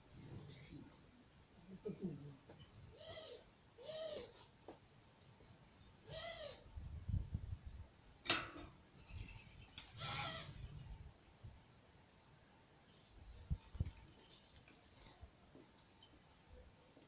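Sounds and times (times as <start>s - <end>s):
bird cooing: 1.8s - 4.4s, 6.0s - 6.6s.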